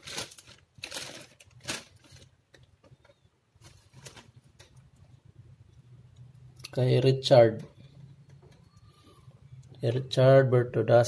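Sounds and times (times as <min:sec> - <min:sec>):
plastic packaging rustling: 0:00.0 - 0:04.9.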